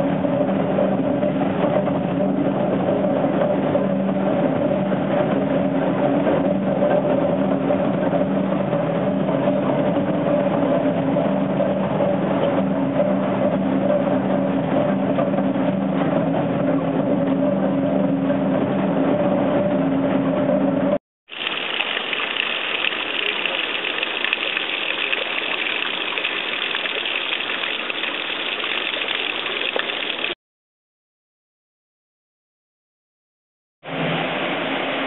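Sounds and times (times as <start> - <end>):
low hum: 0.0 - 30.4
mill gearing running: 0.0 - 30.4
water splashing onto rocks: 21.3 - 30.4.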